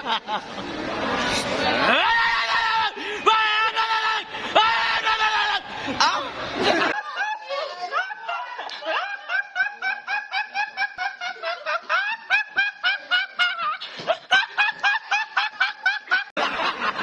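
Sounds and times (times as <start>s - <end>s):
boy laughing uncontrollably: 6.6s - 17.0s.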